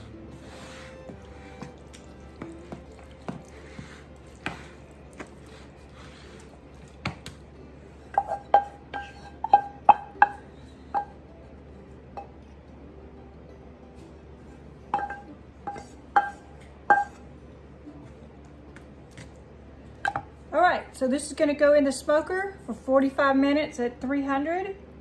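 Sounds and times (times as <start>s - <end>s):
spoon clinking on skillet: 14.9s - 17.2s.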